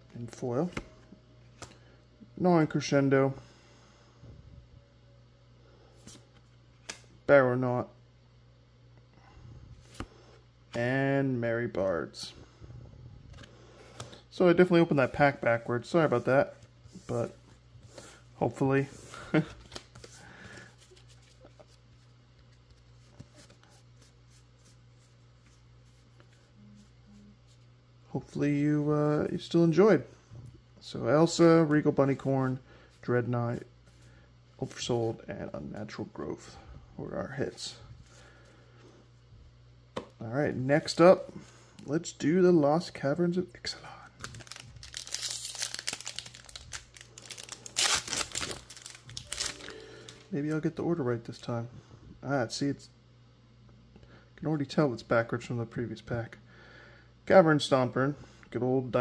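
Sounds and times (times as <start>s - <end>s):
steady low hum: 0.0s - 59.0s
trading cards rustling: 14.9s - 26.9s, 44.2s - 51.4s
foil wrapper crinkling: 44.2s - 50.2s
foil wrapper ripping: 44.2s - 50.2s.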